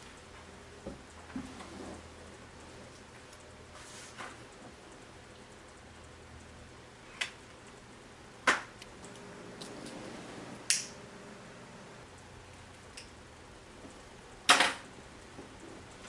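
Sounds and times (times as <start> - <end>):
sharp clicks: 8.4 - 10.0, 10.6 - 11.0.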